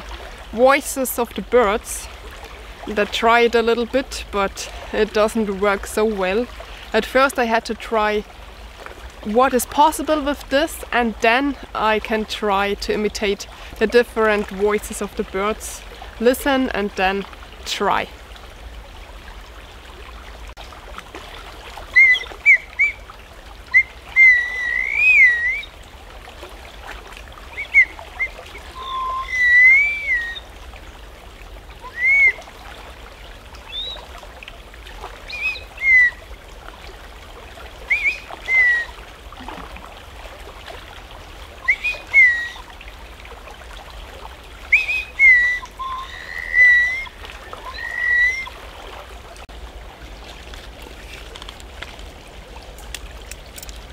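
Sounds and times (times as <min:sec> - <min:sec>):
creek rushing: 0:00.0 - 0:53.9
bird-call whistle chirps: 0:21.9 - 0:23.0, 0:23.7 - 0:25.7, 0:27.5 - 0:30.5, 0:31.8 - 0:32.4, 0:33.7 - 0:34.0, 0:35.3 - 0:36.2, 0:37.9 - 0:39.0, 0:41.6 - 0:42.7, 0:44.7 - 0:48.5.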